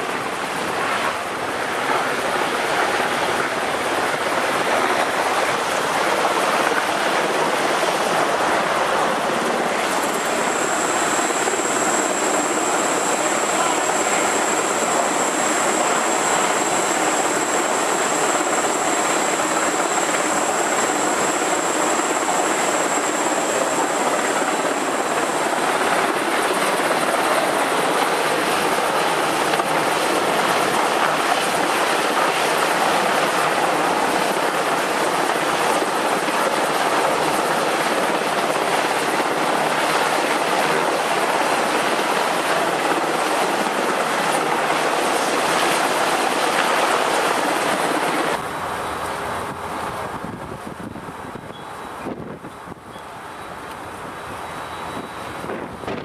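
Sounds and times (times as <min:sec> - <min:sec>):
helicopter flying overhead: 0:00.0 - 0:51.0.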